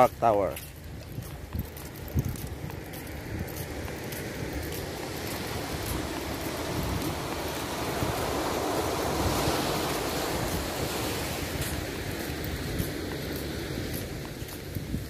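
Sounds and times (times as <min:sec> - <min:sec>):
wind buffeting microphone: 0:00.0 - 0:15.0
surf rushing: 0:03.2 - 0:15.0.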